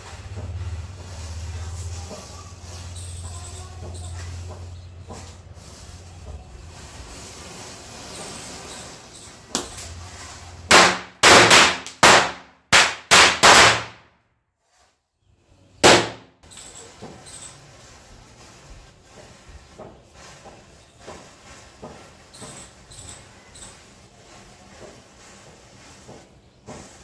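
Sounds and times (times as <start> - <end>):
firecracker bangs: 10.7 - 14.1, 15.8 - 16.3.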